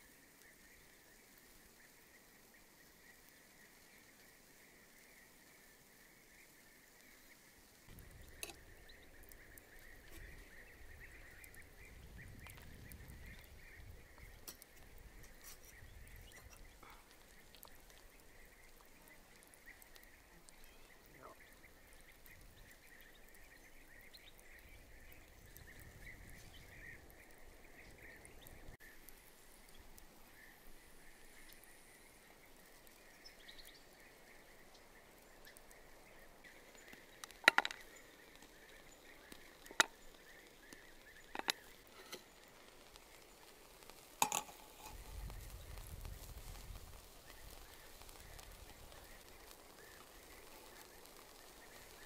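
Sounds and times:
insects chirring: 0.0 - 52.0
faint clicks: 31.4 - 52.0.

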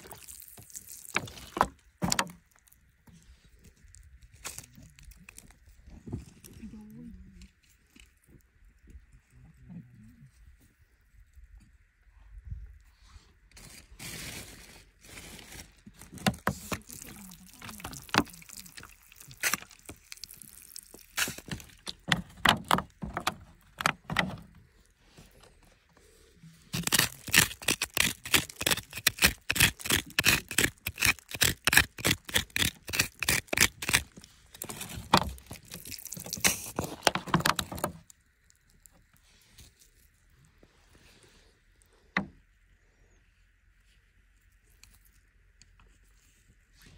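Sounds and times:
loose soil crumbling: 0.0 - 8.3, 13.6 - 40.7
digging in dry dirt: 0.0 - 10.6, 13.2 - 42.2.

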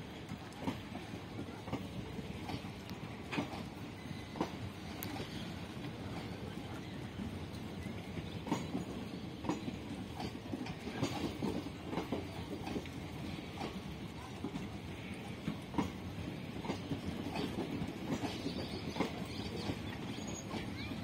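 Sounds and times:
train coaches rumbling past: 0.0 - 21.0
wheels clicking over rail joints: 0.0 - 21.0.

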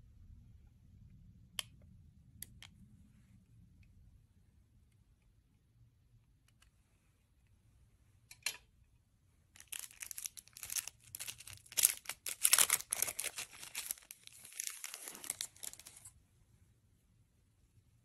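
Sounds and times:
plastic wrapper crinkling and tearing: 9.6 - 16.1.

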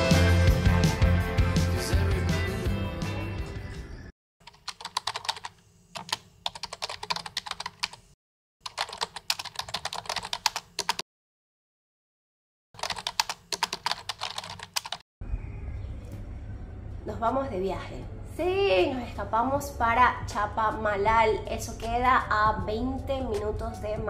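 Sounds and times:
keyboard typing clicks: 4.4 - 8.0, 8.7 - 11.0.

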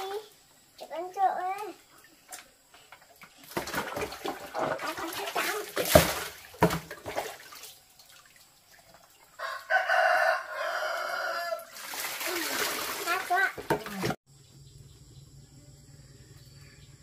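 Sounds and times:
water poured into plastic basin: 3.3 - 9.4, 11.6 - 14.2
rooster crowing: 9.4 - 11.8.

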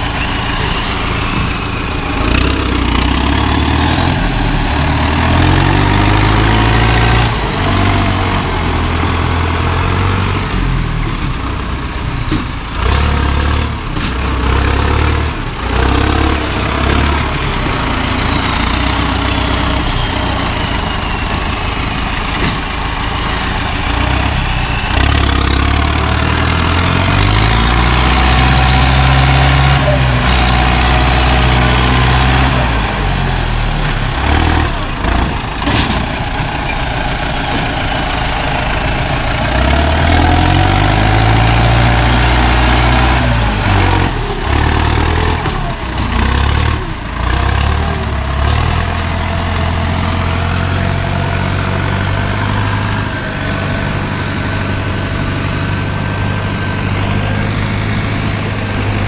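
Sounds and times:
diesel engine revving: 0.0 - 59.0
faint rising whistle: 19.0 - 22.3, 23.0 - 26.7.

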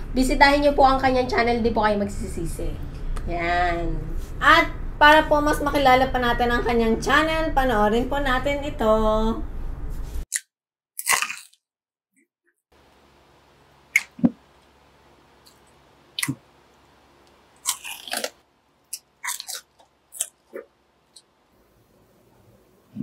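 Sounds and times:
man chewing crispy food: 11.0 - 11.6, 17.6 - 21.3.

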